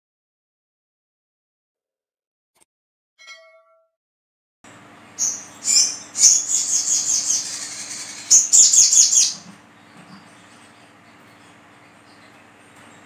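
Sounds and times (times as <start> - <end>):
faint steady hum: 4.7 - 13.0
sunbird chirping and trilling: 4.8 - 13.0.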